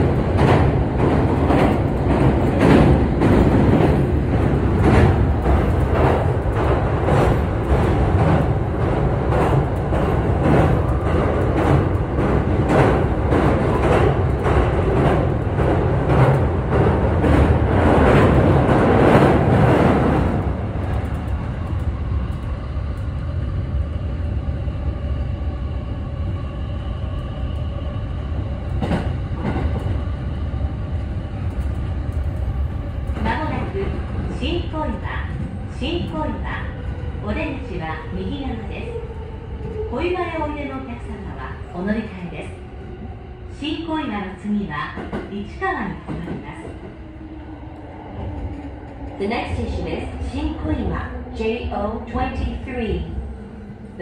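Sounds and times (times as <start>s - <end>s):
train rumble: 0.0s - 54.0s
click: 20.8s - 23.2s, 31.4s - 32.3s.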